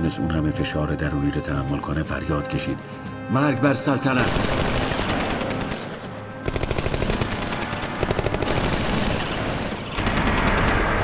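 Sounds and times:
rapid automatic gunfire: 4.1s - 11.0s.

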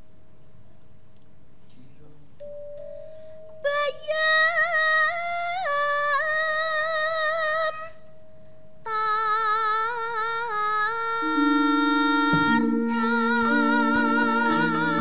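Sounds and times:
woman singing unaccompanied: 3.6s - 8.1s, 8.8s - 15.0s.

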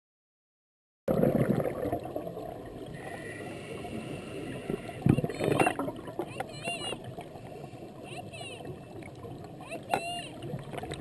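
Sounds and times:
muffled underwater noise: 3.0s - 11.0s.

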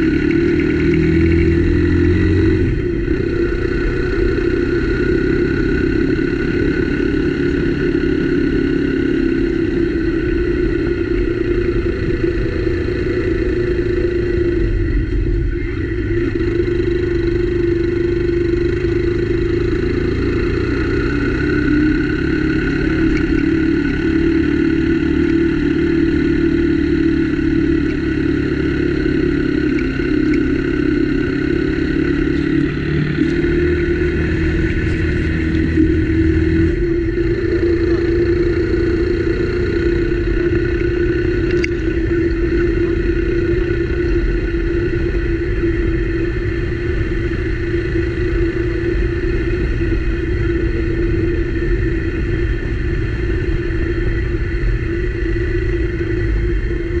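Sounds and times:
low rumble: 0.0s - 57.0s
motorcycle engine running: 0.0s - 57.0s.

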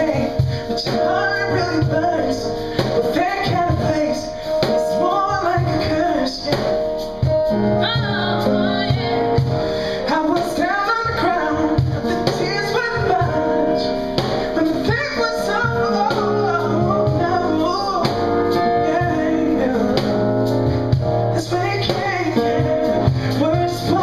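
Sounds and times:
steady low beat: 0.0s - 24.0s
women singing into microphones: 7.7s - 20.4s, 21.3s - 24.0s.

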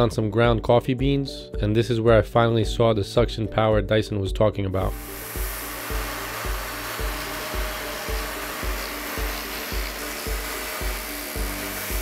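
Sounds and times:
background music with steady beat: 0.0s - 12.0s
vacuum cleaner motor running: 5.0s - 12.0s.

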